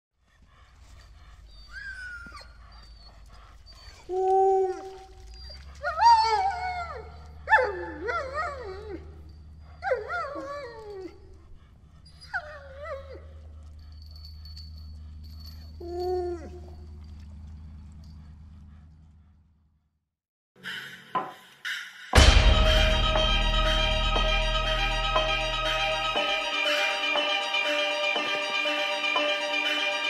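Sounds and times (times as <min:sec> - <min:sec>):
dogs howling and whining: 0:00.9 - 0:18.5.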